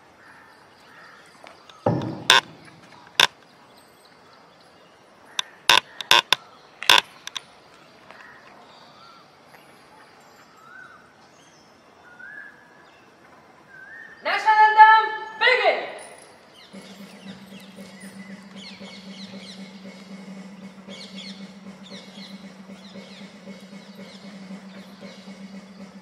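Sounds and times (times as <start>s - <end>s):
sharp knocks: 1.8s - 3.3s, 5.7s - 7.4s.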